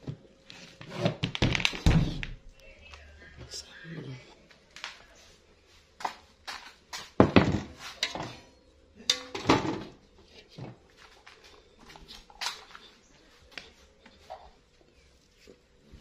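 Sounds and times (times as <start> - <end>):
metal pots and utensils clanking: 7.2 - 10.0.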